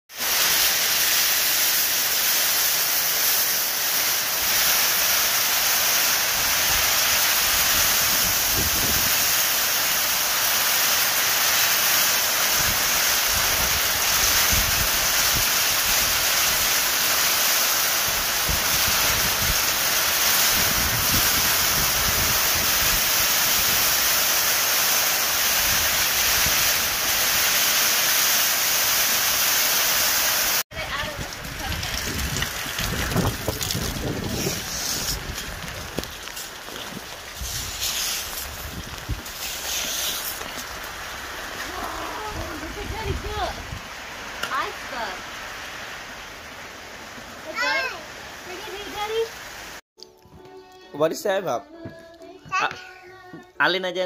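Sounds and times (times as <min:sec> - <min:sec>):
hail falling heavily: 0:00.1 - 0:49.8
wind buffeting microphone: 0:06.4 - 0:09.4, 0:12.6 - 0:16.6, 0:18.1 - 0:24.0, 0:30.7 - 0:39.4, 0:41.6 - 0:44.0.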